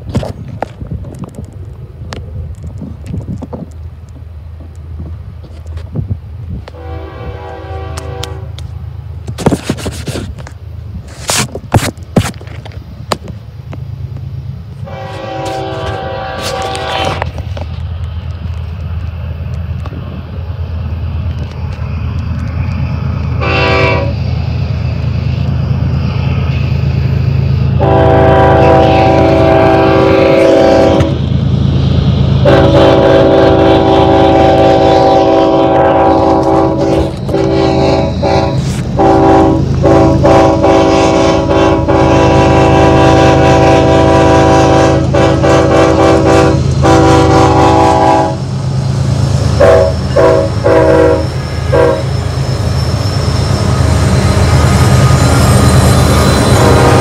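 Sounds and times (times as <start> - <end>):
wind buffeting microphone: 0.0 - 8.3, 9.2 - 51.9
train engines rumbling: 0.0 - 57.0
locomotive air horn chord: 6.7 - 8.6, 14.8 - 17.3, 23.4 - 24.2, 27.8 - 31.2, 32.4 - 48.4, 49.6 - 52.1, 56.5 - 57.0.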